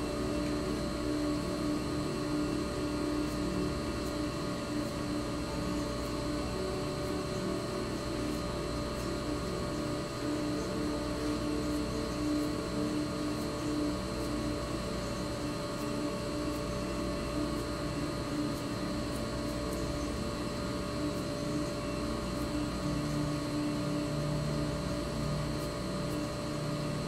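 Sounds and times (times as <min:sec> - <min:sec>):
steady hum with held tones: 0:00.0 - 0:27.0.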